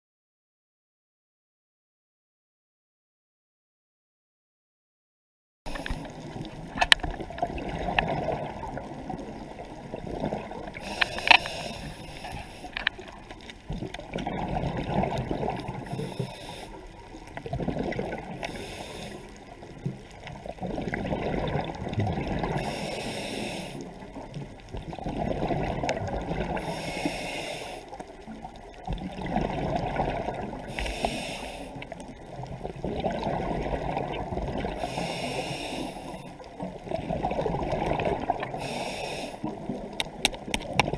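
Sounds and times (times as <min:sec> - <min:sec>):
scuba regulator breathing underwater: 0:10.2 - 0:13.2, 0:14.4 - 0:19.6, 0:21.0 - 0:24.2, 0:25.3 - 0:28.2, 0:29.4 - 0:32.0, 0:33.3 - 0:36.5, 0:37.8 - 0:39.7.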